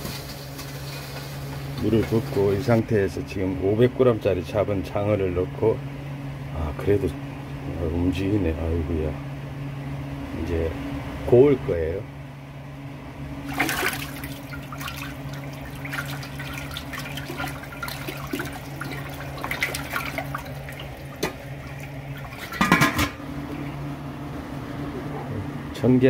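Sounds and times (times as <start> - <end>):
water splashing in a metal pot: 13.4 - 23.2.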